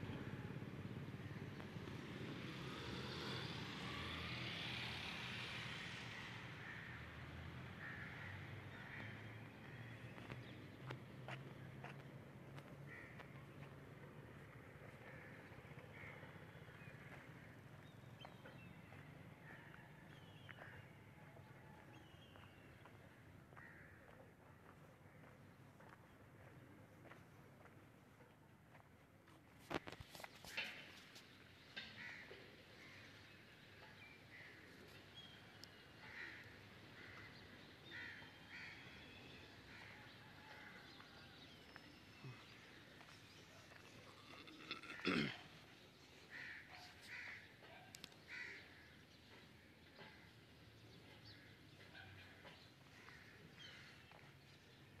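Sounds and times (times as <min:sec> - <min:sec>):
crows cawing: 0:06.6 - 0:07.1, 0:07.7 - 0:10.0, 0:12.8 - 0:13.4, 0:14.9 - 0:17.5, 0:23.5 - 0:24.3, 0:31.8 - 0:33.1, 0:36.0 - 0:41.2, 0:46.3 - 0:47.6, 0:48.3 - 0:48.9, 0:52.9 - 0:54.2.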